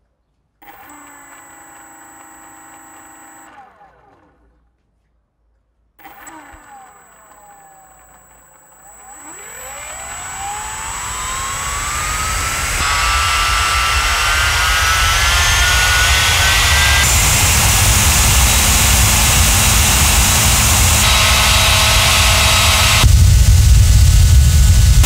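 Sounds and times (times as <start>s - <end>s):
electric ducted fan whining: 0.6s - 3.6s, 6.0s - 25.0s.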